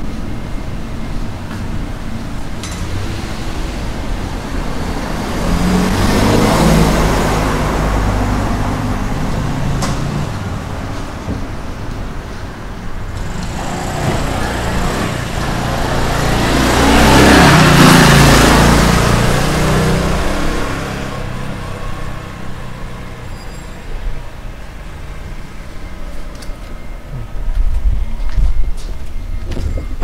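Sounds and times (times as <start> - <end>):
vehicle passing by: 2.8 - 10.7, 13.2 - 23.2.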